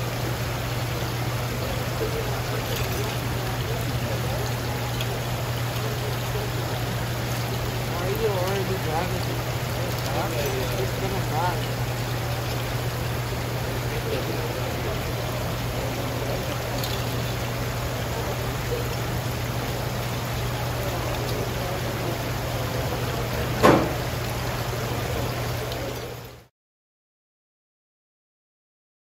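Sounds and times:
water trickling and splashing: 0.0s - 26.5s
sharp knock: 23.6s - 24.0s.

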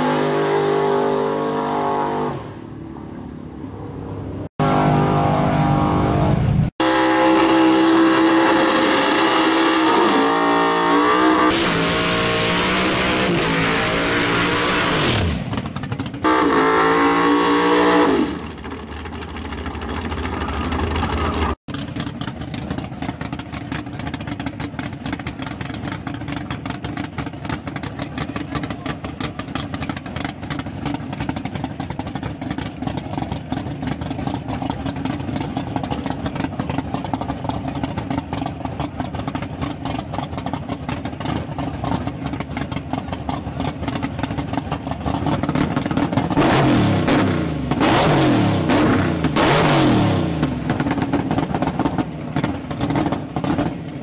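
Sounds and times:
race engines revving at full throttle: 0.0s - 54.0s
race car idling rumble: 15.3s - 16.4s, 18.3s - 47.8s, 50.0s - 54.0s.

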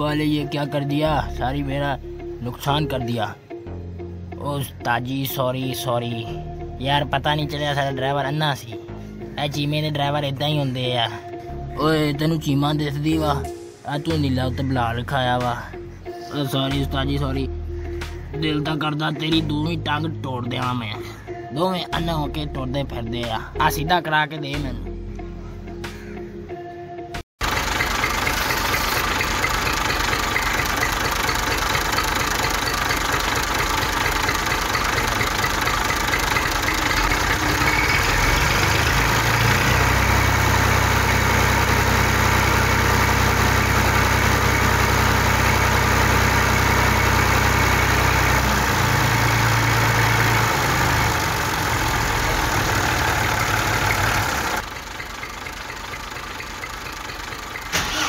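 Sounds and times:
tractor engine running: 27.4s - 58.0s
deeper engine note: 27.5s - 58.0s.

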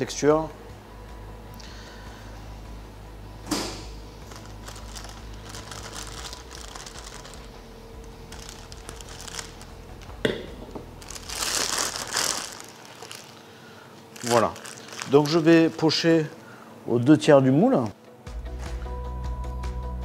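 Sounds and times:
faint steady hum: 0.0s - 18.3s
plastic piping bag crinkling: 4.2s - 10.2s, 10.9s - 16.4s.

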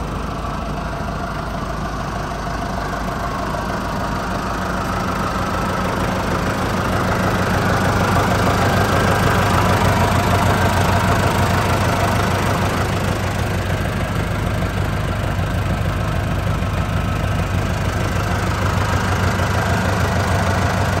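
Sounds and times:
tractor diesel engine idling: 0.0s - 21.0s.

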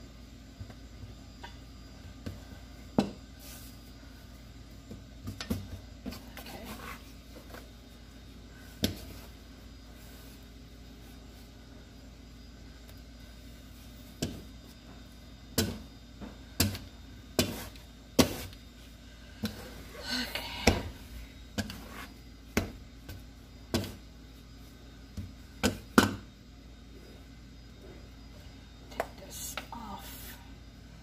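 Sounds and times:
hands kneading dough: 0.3s - 26.3s
bench scraper cutting dough: 17.4s - 18.6s.

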